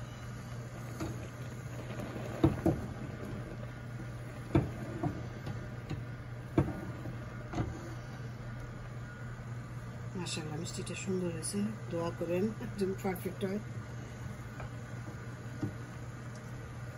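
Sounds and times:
milk boiling with bubbling pops: 0.0 - 10.8, 13.0 - 16.9
steady low hum: 0.0 - 16.9.

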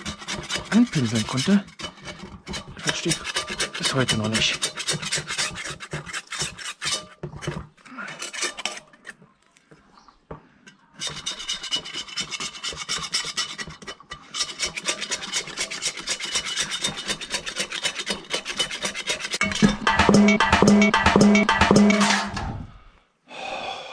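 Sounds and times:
brush scrubbing on steel: 0.0 - 9.2, 11.0 - 19.5.

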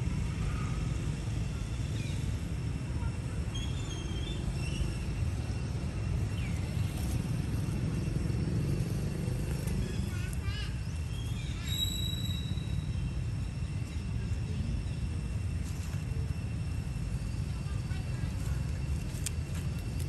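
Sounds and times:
low outdoor rumble: 0.0 - 20.0
faint bird chirps: 9.9 - 15.1.

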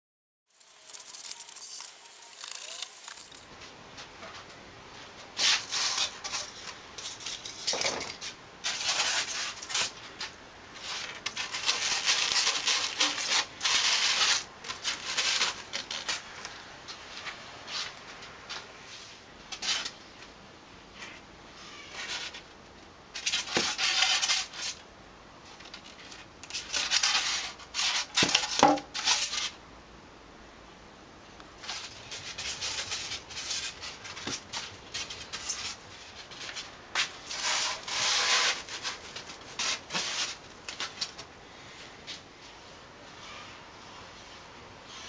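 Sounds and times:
polystyrene foam scraping: 0.5 - 3.5, 5.4 - 16.6, 23.2 - 24.8, 26.0 - 29.6, 31.6 - 41.2.

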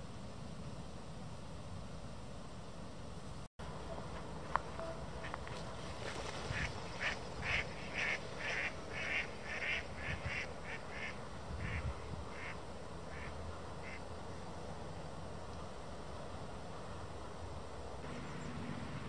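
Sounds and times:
ducks quacking: 3.8 - 14.0.

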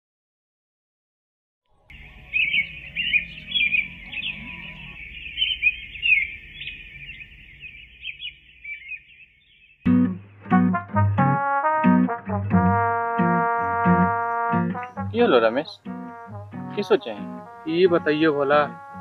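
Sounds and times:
birds chirping and twittering: 1.7 - 10.0, 13.6 - 15.9.

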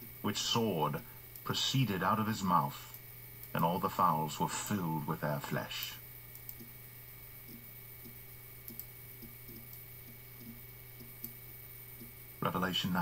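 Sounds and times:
faint electrical hum: 0.0 - 13.0
small soft clicks and ticks: 1.2 - 1.5, 2.8 - 3.6, 5.4 - 6.8, 7.4 - 11.4, 12.0 - 12.2.

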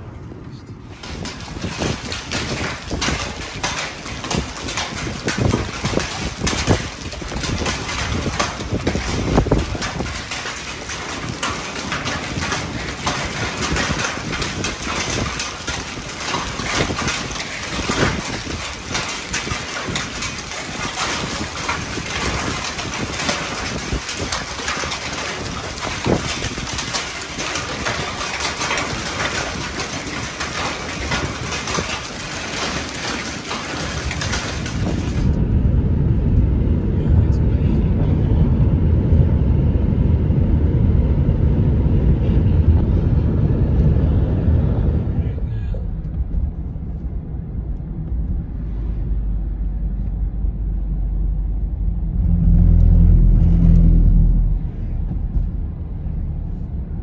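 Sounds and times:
hail and rain on pavement: 0.9 - 35.4.

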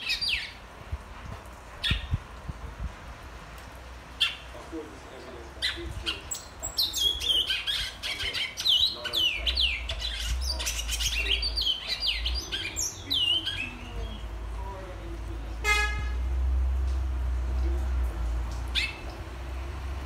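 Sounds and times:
finch singing whistled notes: 5.6 - 14.3.

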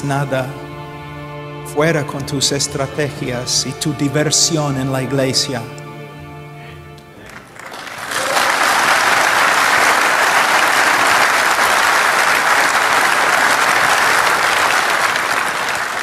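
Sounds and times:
large audience applauding: 7.2 - 16.0.

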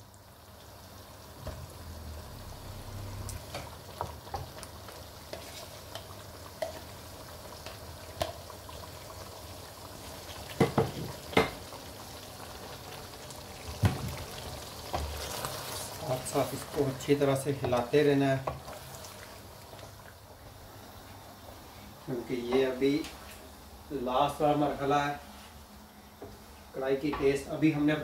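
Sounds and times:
food sizzling in a pan: 0.0 - 25.6
wooden spoon knocking on pan: 10.5 - 11.6.

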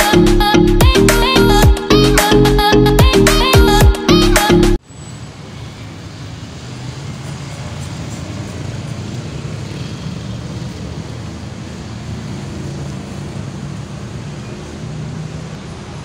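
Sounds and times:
city traffic rumble: 4.8 - 16.0.

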